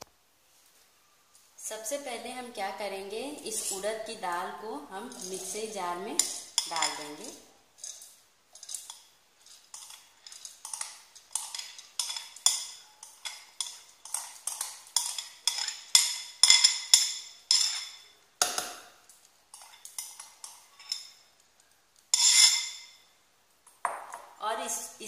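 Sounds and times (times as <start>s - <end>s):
clinks and scrapes on steel: 5.0s - 18.2s, 19.2s - 23.1s.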